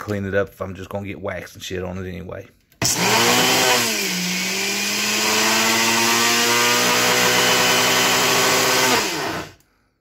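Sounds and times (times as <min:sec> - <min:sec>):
blender motor whining: 0:02.8 - 0:09.6.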